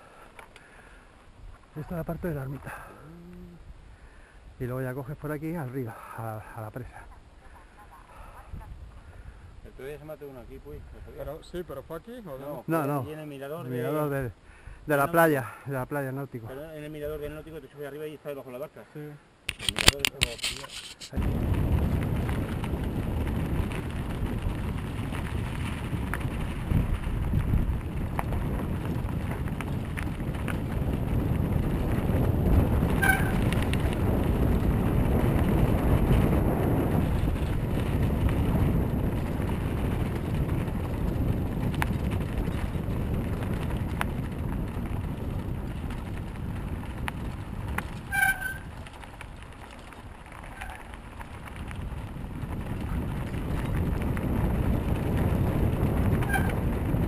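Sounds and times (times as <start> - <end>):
wind on microphone: 8.1 - 9.6, 19.5 - 49.5, 50.2 - 57.0
tyres rolling rumble: 21.1 - 57.0
short high squeaks: 33.0 - 33.4, 48.1 - 48.7, 56.2 - 56.6.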